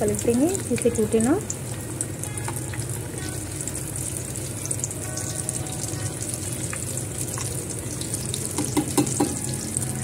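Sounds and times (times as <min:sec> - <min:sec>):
food deep-frying in oil: 0:00.0 - 0:10.0
metal spoon scraping and tapping: 0:08.5 - 0:09.4.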